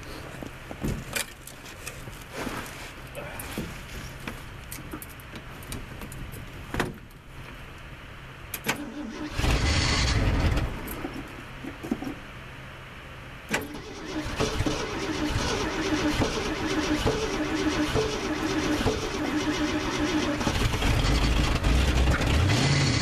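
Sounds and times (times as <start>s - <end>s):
engine starting: 8.6s - 10.9s, 13.5s - 23.0s.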